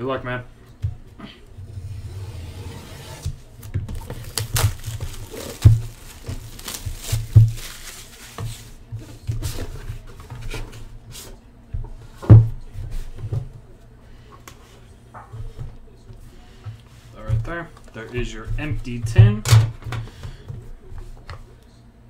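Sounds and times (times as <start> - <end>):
plastic shrink wrap crinkling: 3.6 - 8.7.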